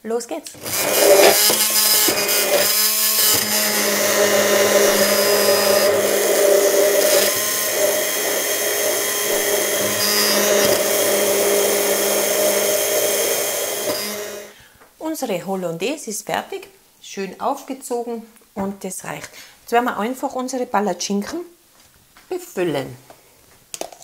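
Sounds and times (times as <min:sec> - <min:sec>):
immersion blender motor hum: 0:00.6 - 0:14.6.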